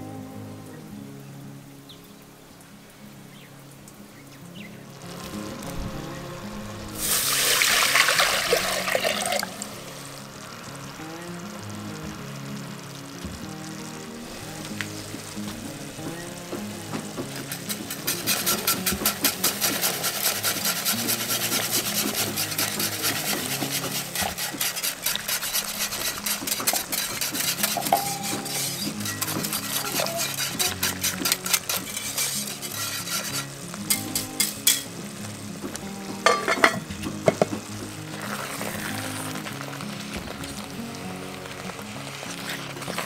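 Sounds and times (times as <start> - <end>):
utensil scraping cast-iron pot: 6.9 - 11.1, 12.3 - 43.0
utensil knocking on pot: 36.2 - 37.6.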